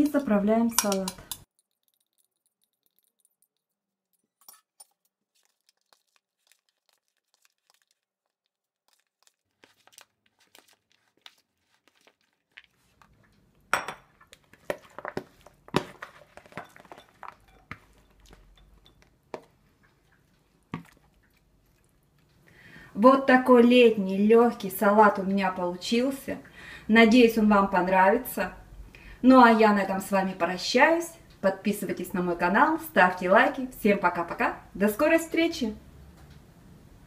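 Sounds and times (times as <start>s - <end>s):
lettuce rustling: 4.8s - 13.6s, 14.2s - 22.3s.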